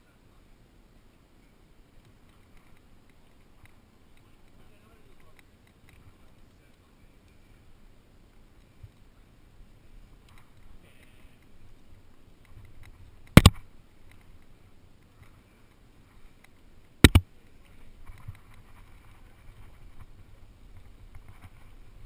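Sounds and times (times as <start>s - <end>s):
sharp knocks: 17.0s - 17.2s.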